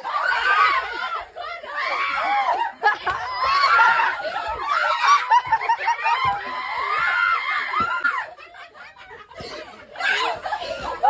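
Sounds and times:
excited chatter: 0.0 - 11.0
people laughing and shrieking: 0.0 - 11.0.

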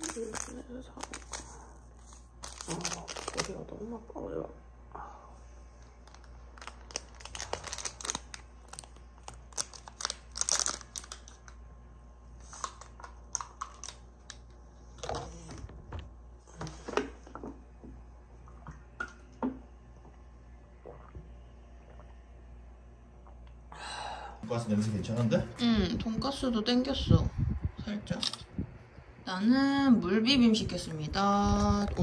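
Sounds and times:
plastic sachet crinkling and tearing: 0.0 - 3.8, 5.8 - 11.6, 12.4 - 14.5
plastic packaging crackles: 0.0 - 3.9, 5.8 - 11.6, 12.4 - 15.2.

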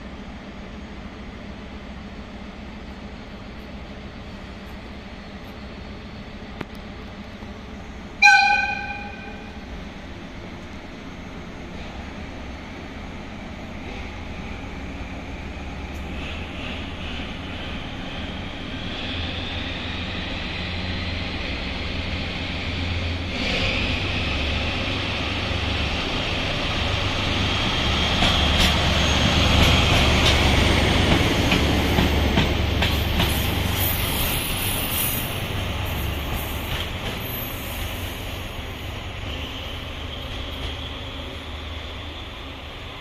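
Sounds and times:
diesel locomotive engine: 0.0 - 43.0
train wheels clicking over rail joints: 26.4 - 38.4.

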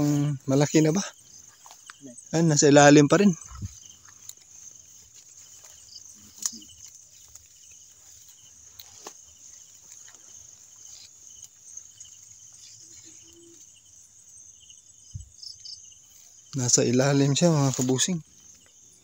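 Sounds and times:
crickets and insects chirring: 0.0 - 19.0
brush rustling and clicking: 3.5 - 13.2, 16.1 - 18.8.

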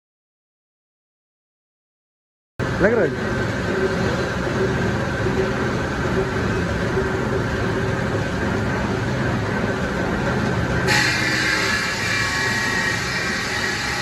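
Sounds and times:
slab polishing machine humming: 9.6 - 14.0.

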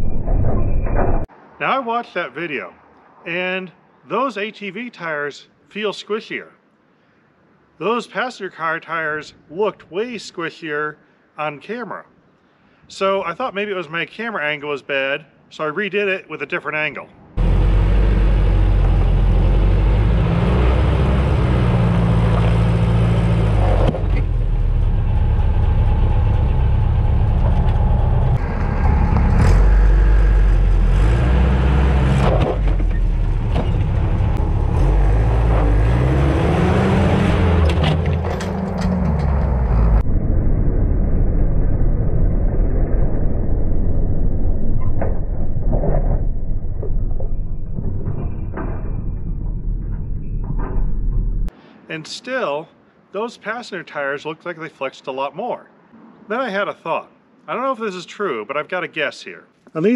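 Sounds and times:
engine revving under load: 17.4 - 40.0.

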